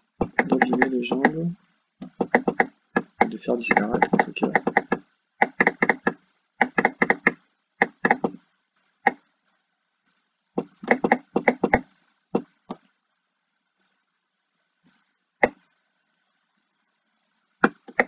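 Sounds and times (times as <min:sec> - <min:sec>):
computer mouse clicks: 0:00.2 - 0:01.4, 0:02.0 - 0:08.4, 0:10.6 - 0:12.8.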